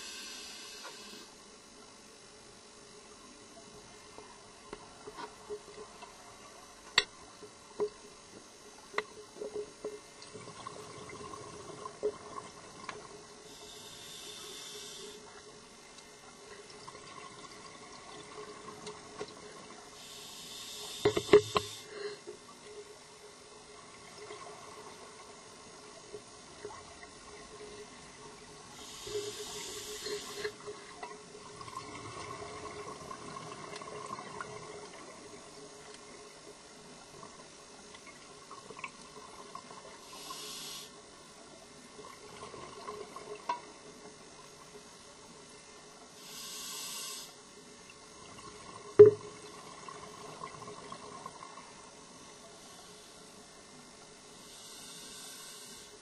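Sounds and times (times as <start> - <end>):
diver breathing through regulator: 0.0 - 1.4, 13.5 - 15.2, 20.0 - 22.3, 28.8 - 30.6, 40.0 - 41.0, 46.2 - 47.4, 54.4 - 56.0
faint steady hum: 0.0 - 56.0.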